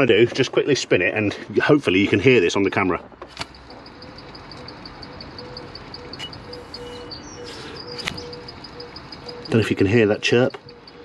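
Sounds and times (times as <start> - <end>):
rapid bearing chirps: 3.4 - 11.0.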